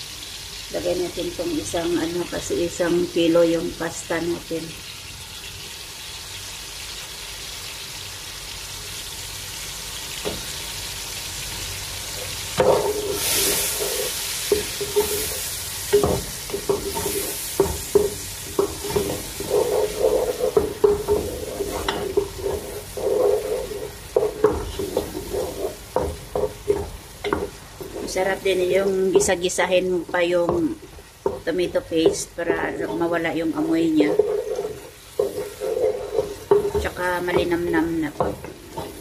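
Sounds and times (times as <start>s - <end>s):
mushrooms sizzling in oil: 0.0s - 39.0s
spatula scraping and knocking pot: 12.6s - 39.0s.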